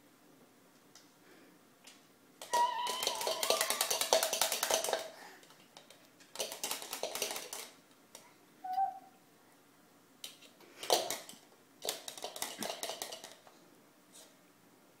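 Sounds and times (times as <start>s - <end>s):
fork rattling against plastic cup: 2.8s - 5.1s, 5.8s - 7.8s, 10.8s - 13.4s.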